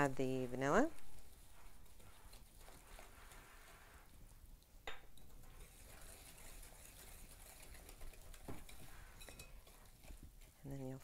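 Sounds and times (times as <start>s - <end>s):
whisk stirring in glass bowl: 0.0s - 4.4s, 5.2s - 10.6s
metal clinking against glass: 9.2s - 9.6s.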